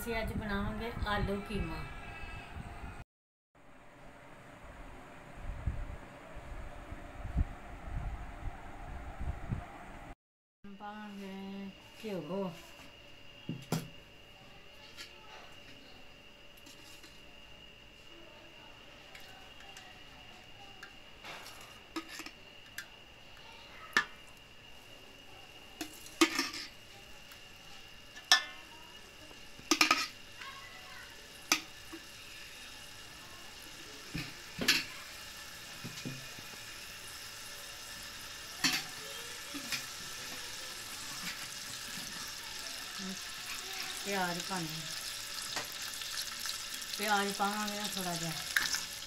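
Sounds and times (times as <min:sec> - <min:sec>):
faint sizzle: 0:10.7 - 0:49.0
metal spoon scraping steel pot: 0:22.0 - 0:22.4.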